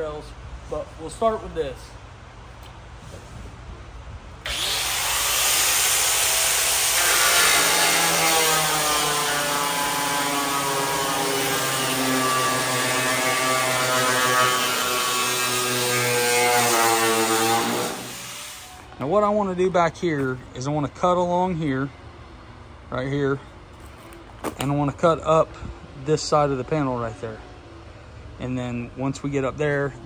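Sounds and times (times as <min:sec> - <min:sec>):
angle grinder cutting sheet steel: 0:04.5 - 0:18.7.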